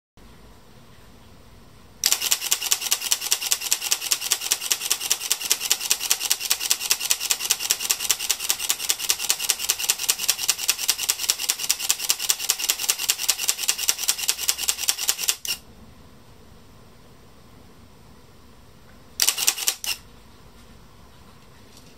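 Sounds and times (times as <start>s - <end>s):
camera shutter clicking: 2.0s - 15.6s, 19.2s - 20.0s.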